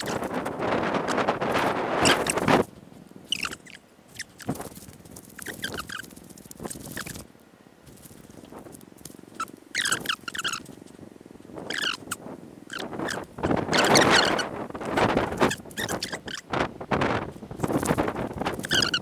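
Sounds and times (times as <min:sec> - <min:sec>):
high squeaky chirps: 0:00.0 - 0:02.6, 0:03.3 - 0:07.2, 0:09.3 - 0:10.8, 0:11.6 - 0:16.5, 0:17.6 - 0:19.0
wind on microphone: 0:00.0 - 0:07.3, 0:07.9 - 0:19.0.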